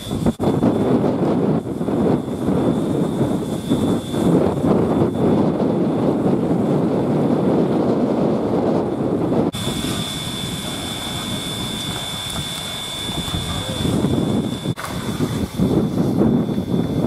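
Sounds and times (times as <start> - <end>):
steady high whine: 0.0 - 17.0
steam locomotive hissing: 9.6 - 14.8.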